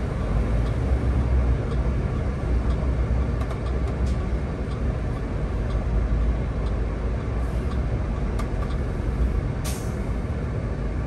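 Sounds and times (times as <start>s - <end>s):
bus engine and road noise: 0.0s - 11.0s
pneumatic air hiss: 9.7s - 10.0s.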